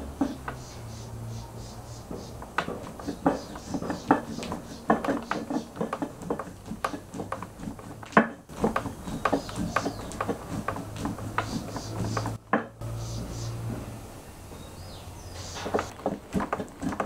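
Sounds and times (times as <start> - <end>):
sharp taps and knocks: 0.0 - 1.0, 1.9 - 12.9, 15.4 - 17.0.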